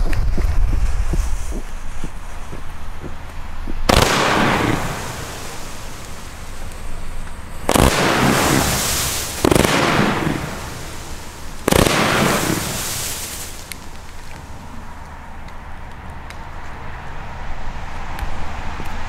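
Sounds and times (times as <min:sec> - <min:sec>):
firework crackling hiss: 0:00.0 - 0:15.1
firework volleys: 0:00.0 - 0:16.6.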